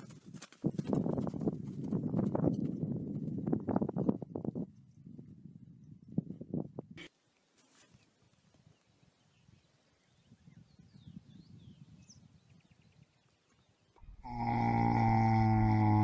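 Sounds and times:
horse groaning: 14.0s - 16.0s.

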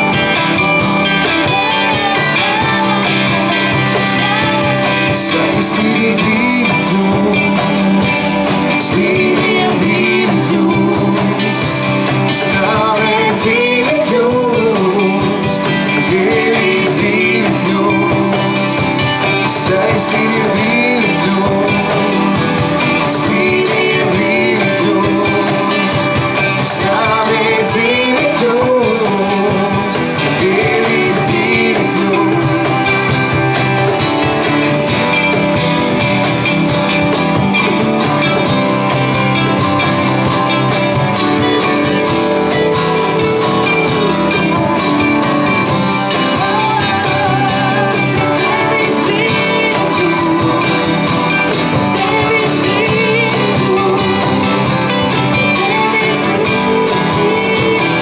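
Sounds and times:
woman singing into microphone: 0.0s - 33.6s, 42.6s - 58.0s
worship band playing: 0.0s - 58.0s.

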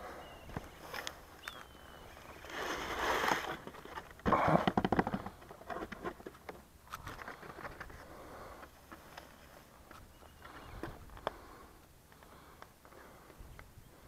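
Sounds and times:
dry grass rustling and crackling: 0.5s - 4.2s.

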